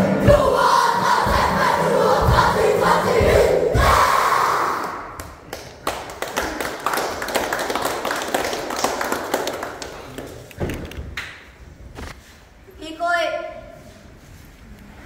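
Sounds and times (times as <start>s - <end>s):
audience applause: 5.2s - 10.5s.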